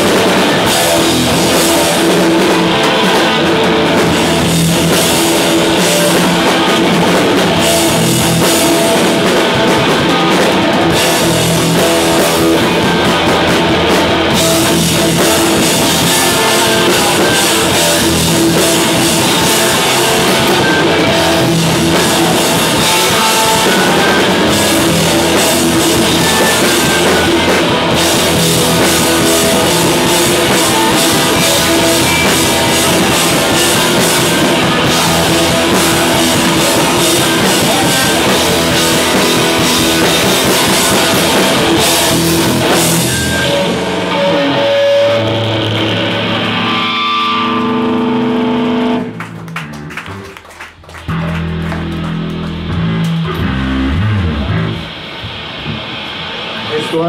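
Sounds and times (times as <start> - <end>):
bass guitar: 0.0 - 57.0
drum kit: 0.0 - 57.0
electric guitars: 0.0 - 57.0.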